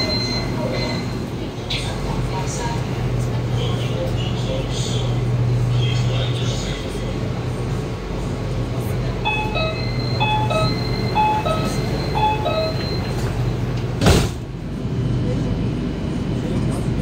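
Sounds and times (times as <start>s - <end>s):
train car hum: 0.0s - 17.0s
two-note door warning chime: 9.3s - 13.4s.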